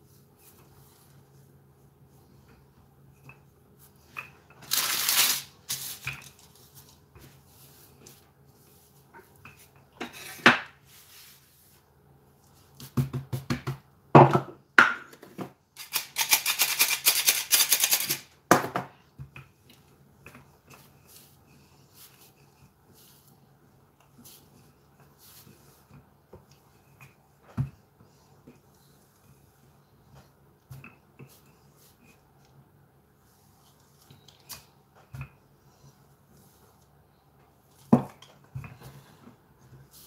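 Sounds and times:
rolling pin rolling dough on paper: 19.0 - 40.0.

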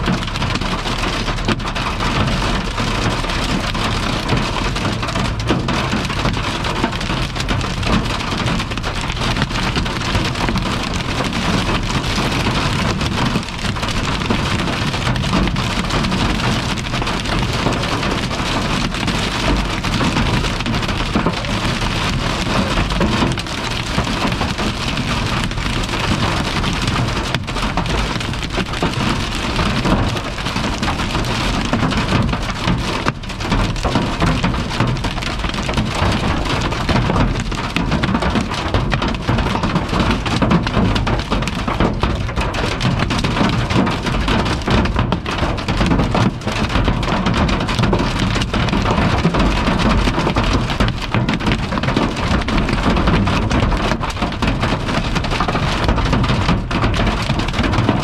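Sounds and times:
hail and rain drumming on car roof: 0.0 - 58.0.

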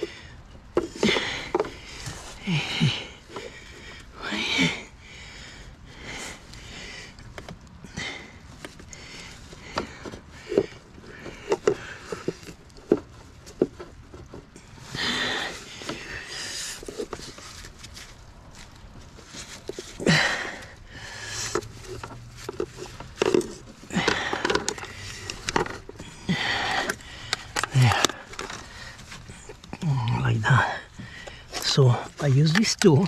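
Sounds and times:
man sniffing and breathing hard: 0.0 - 13.6, 14.5 - 18.1, 19.2 - 32.3
clicks and knocks of car parts: 0.7 - 1.8, 9.6 - 14.4, 21.5 - 26.0, 26.8 - 29.8.

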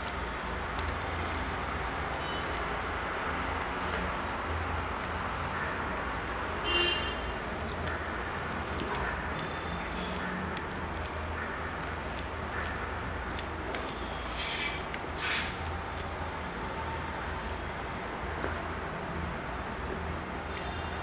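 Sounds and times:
chewing: 0.0 - 1.7, 7.2 - 20.6.

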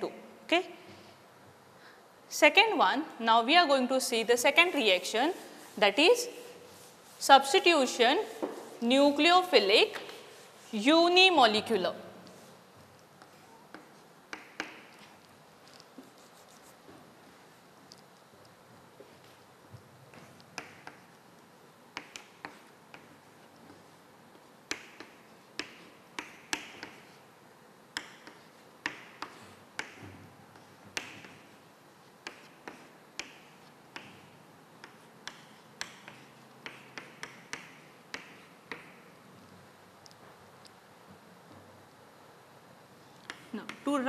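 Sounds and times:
chalk tapping on blackboard: 4.6 - 11.2, 12.2 - 17.2, 19.0 - 21.2, 21.9 - 39.2, 43.2 - 44.0
chalk scratching: 4.6 - 11.6, 12.2 - 16.9, 22.0 - 27.4, 28.0 - 39.0.

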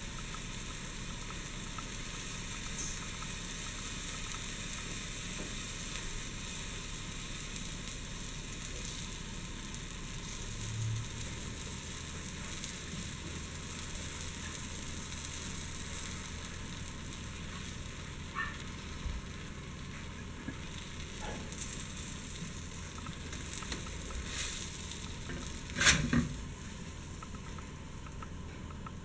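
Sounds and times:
sandwich sizzling in a skillet: 0.0 - 27.6
spatula scraping a pan: 25.3 - 26.4.

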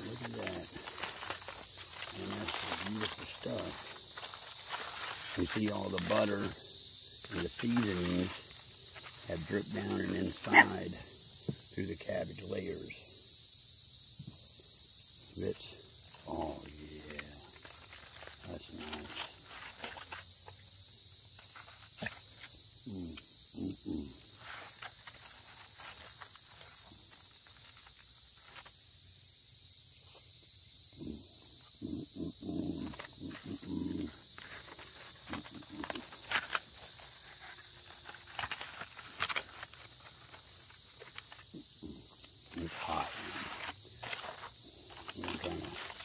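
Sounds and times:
aluminium foil crinkling: 0.0 - 6.6, 7.2 - 10.5, 16.9 - 20.6, 24.4 - 28.7, 32.9 - 41.6, 42.2 - 46.0
insects chorus: 0.0 - 46.0.

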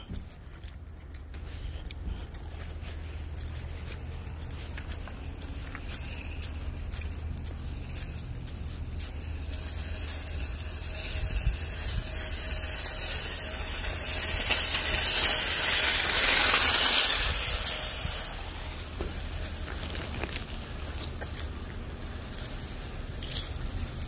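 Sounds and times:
shopping bag jingling and rustling: 0.0 - 24.0
steady low rumble: 0.0 - 24.0
broad hiss: 9.6 - 19.4.

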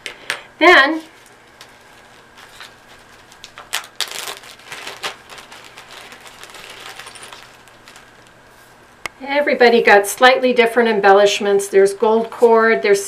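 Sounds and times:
plastic bag crinkling: 1.0 - 8.9.

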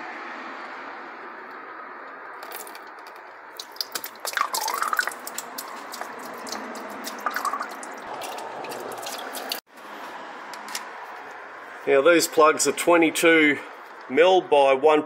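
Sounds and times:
oil splashing into drain pan: 3.5 - 9.6.

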